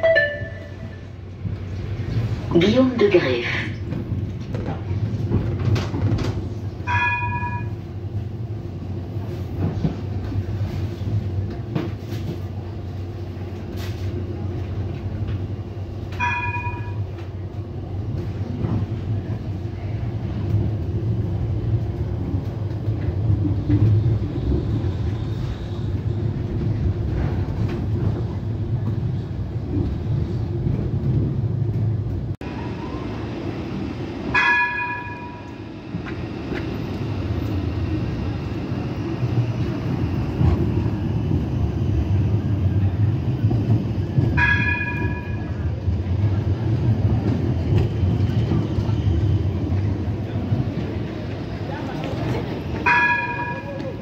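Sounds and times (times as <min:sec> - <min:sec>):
tram warning bell ringing: 0:00.0 - 0:01.2, 0:06.8 - 0:08.2, 0:16.1 - 0:17.5, 0:34.2 - 0:36.1, 0:44.2 - 0:46.0, 0:52.6 - 0:54.0
tram wheels rumbling on rail: 0:00.0 - 0:54.0.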